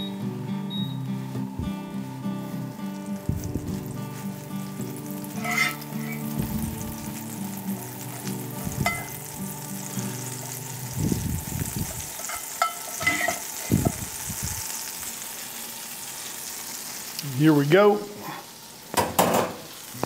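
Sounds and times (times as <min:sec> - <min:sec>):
butter sizzling in skillet: 0:02.0 - 0:20.0
metal spoon clinking pan: 0:05.4 - 0:05.8, 0:08.8 - 0:09.1, 0:12.2 - 0:13.5.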